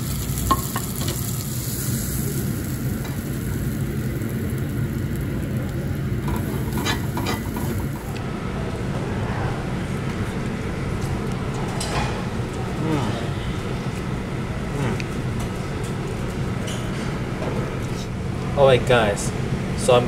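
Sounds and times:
shrimp sizzling on a grill: 0:00.0 - 0:08.2
steady low rumble: 0:00.0 - 0:11.2.

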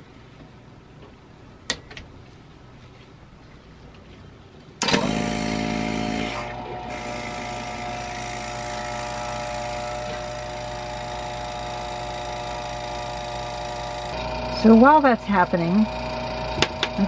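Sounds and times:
vacuum pump running: 0:04.8 - 0:17.0.

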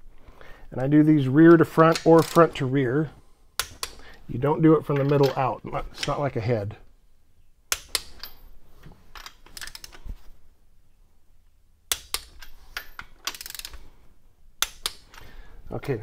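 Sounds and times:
socket wrench ratcheting: 0:09.2 - 0:10.0, 0:11.9 - 0:13.8.

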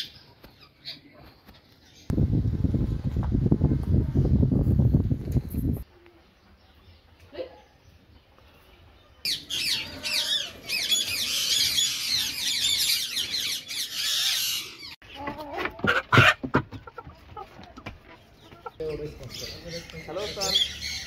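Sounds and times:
small birds chirping: 0:04.6 - 0:15.7, 0:16.7 - 0:21.0
chickens clucking: 0:13.9 - 0:21.0.

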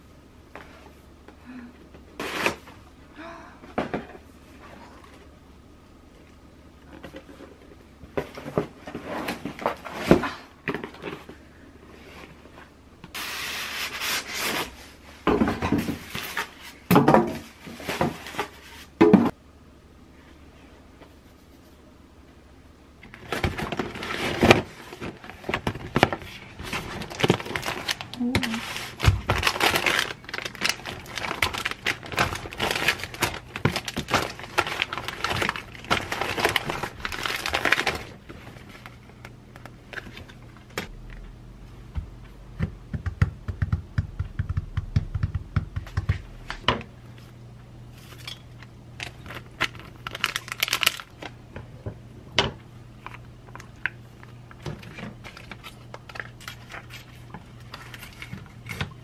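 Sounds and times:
plastic packs crinkling: 0:23.2 - 0:40.8, 0:49.0 - 0:51.4.

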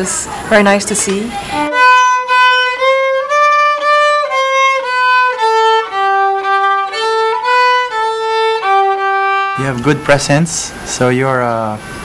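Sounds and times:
solo violin melody: 0:01.3 - 0:10.7.

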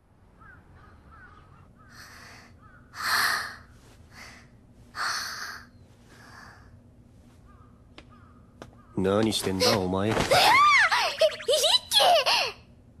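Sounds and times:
crows cawing: 0:00.3 - 0:03.6, 0:07.4 - 0:09.3.

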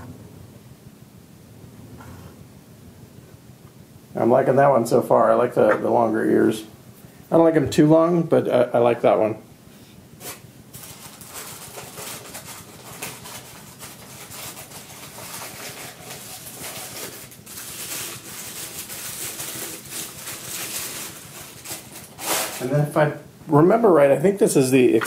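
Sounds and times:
rustling of packaging: 0:10.2 - 0:23.0.

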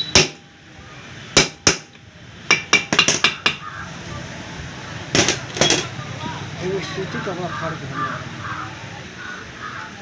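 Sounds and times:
ringing metallic taps: 0:01.4 - 0:03.6.

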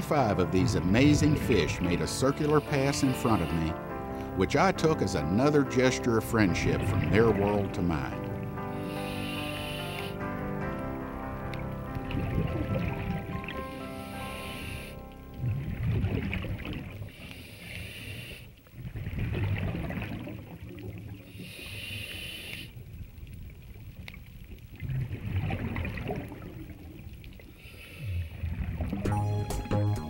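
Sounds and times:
regulator hissing inhale: 0:02.6 - 0:04.4, 0:08.6 - 0:10.4, 0:13.6 - 0:15.1, 0:17.1 - 0:18.6, 0:21.3 - 0:22.8, 0:27.4 - 0:28.4
exhaled bubbles rushing: 0:11.9 - 0:13.8, 0:15.2 - 0:17.2, 0:18.7 - 0:21.3, 0:24.6 - 0:27.2, 0:28.3 - 0:29.1.

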